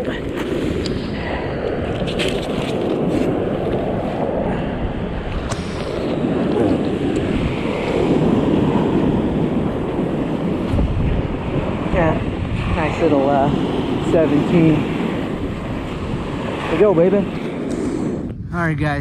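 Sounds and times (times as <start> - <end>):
surf breaking on beach: 0.0 - 18.3
wind buffeting microphone: 0.0 - 19.0.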